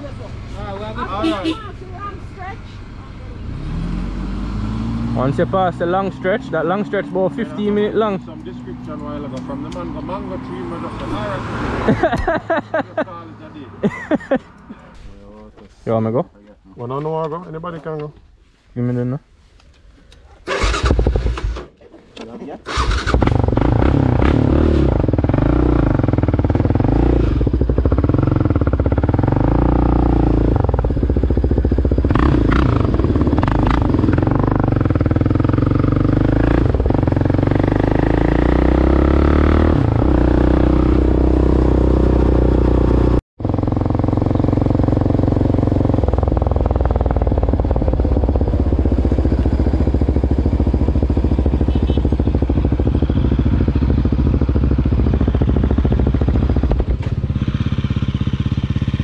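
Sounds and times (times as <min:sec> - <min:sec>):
quad engine revving: 0:03.3 - 0:08.1, 0:20.5 - 0:21.6, 0:22.6 - 0:59.0.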